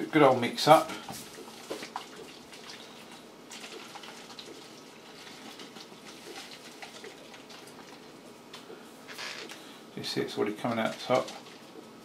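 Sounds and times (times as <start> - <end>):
liquid sloshing in shaken bottle: 1.1 - 8.3, 10.6 - 12.0.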